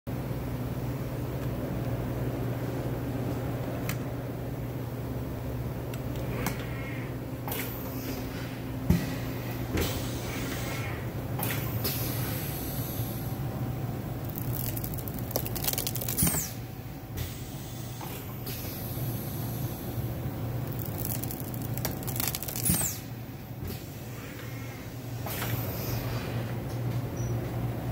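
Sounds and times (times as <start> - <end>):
press hiss and clack: 17.2 - 20.0.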